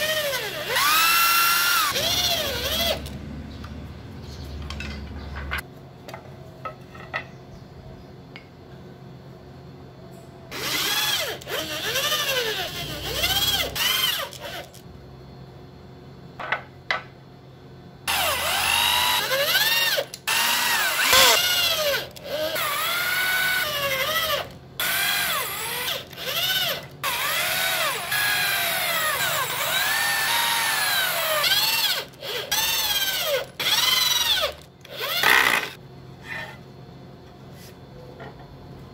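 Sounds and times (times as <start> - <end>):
electric drill driving screws: 0.0 - 3.2, 10.5 - 14.8, 18.1 - 35.8.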